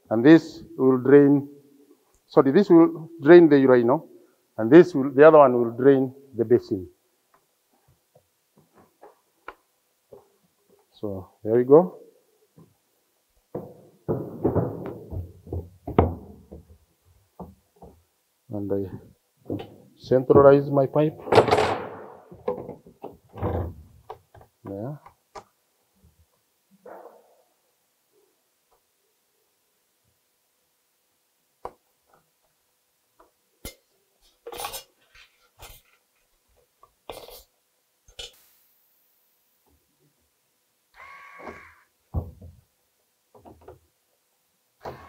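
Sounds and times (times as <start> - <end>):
clattering scrape: 34.2 - 36.0.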